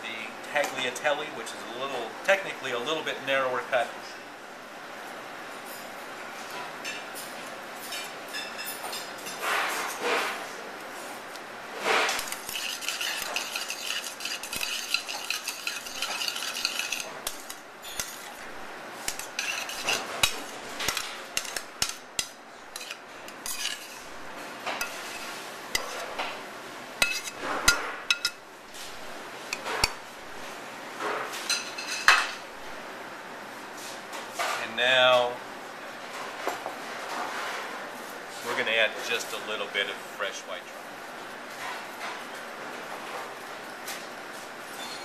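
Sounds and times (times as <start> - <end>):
metal utensil scraping skillet: 11.8 - 18.4, 19.0 - 24.1, 24.8 - 26.2, 27.0 - 28.4.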